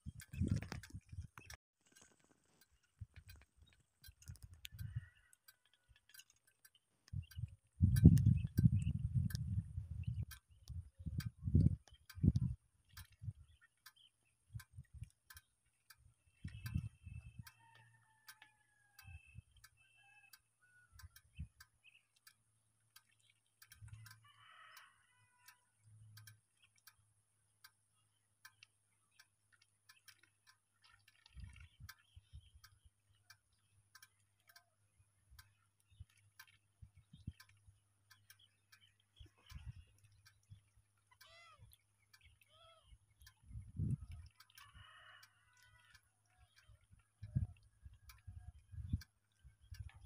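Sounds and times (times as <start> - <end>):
faint even ticking: 25.4 - 48.3.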